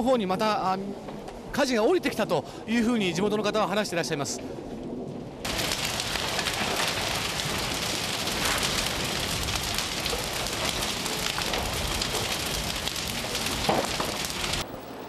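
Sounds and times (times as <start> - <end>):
house fire crackling: 4.3 - 15.0
loud pop of fire: 5.4 - 14.6.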